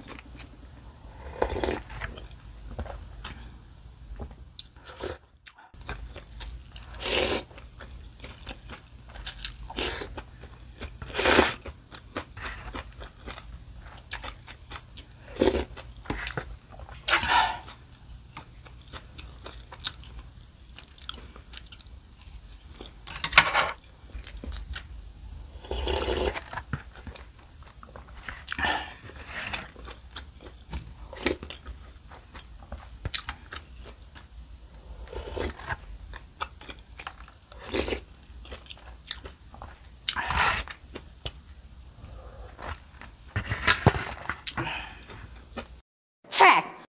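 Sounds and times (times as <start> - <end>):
quiet chewing: 4.6 - 23.2.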